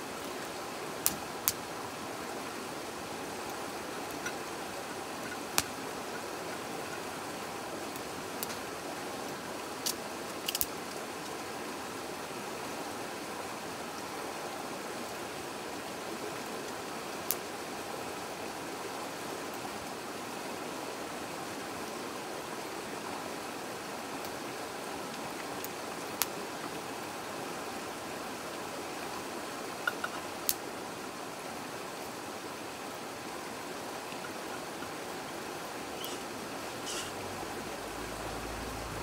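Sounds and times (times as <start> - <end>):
river rushing: 0.0 - 39.0
fire crackling and popping: 1.0 - 1.6, 5.2 - 5.8, 7.9 - 8.7, 9.8 - 11.0.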